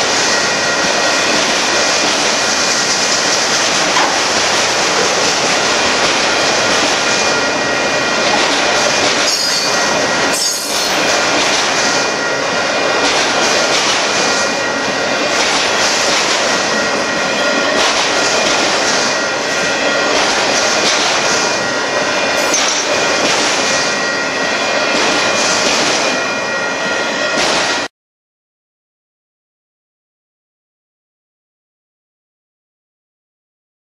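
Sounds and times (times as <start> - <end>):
train wheels rushing on rail: 0.0 - 27.9
wheels clacking over rail joints: 0.3 - 26.2.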